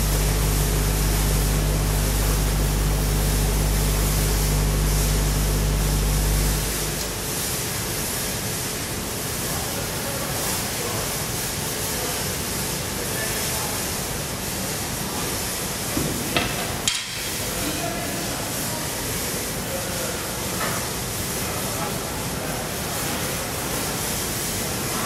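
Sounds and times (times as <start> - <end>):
air hissing: 0.0 - 7.2
machine humming: 0.0 - 7.5.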